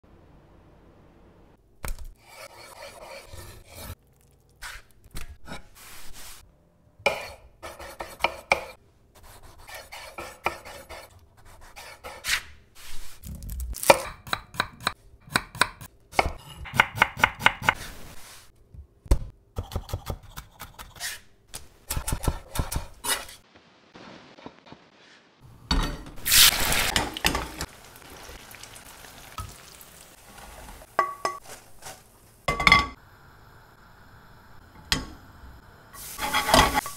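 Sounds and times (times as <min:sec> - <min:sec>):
loud sizzling frying: 0:26.1 - 0:33.1, 0:35.9 - 0:36.9.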